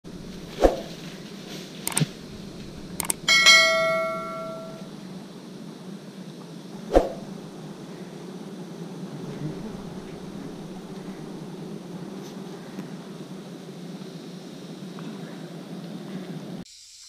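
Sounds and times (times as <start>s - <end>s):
short clicks: 1.8s - 2.2s, 2.9s - 3.3s
metallic bell-like ring: 3.3s - 4.9s.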